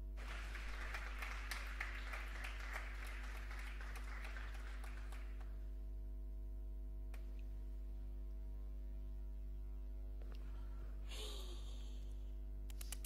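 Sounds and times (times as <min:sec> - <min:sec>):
audience applauding: 0:00.0 - 0:05.6
low electrical hum: 0:00.0 - 0:13.0.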